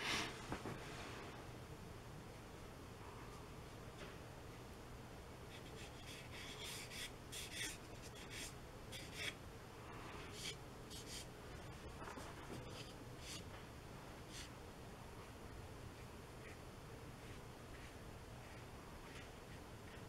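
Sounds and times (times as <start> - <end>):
paintbrush strokes on paper: 5.5 - 13.5, 14.3 - 14.5, 16.0 - 20.0.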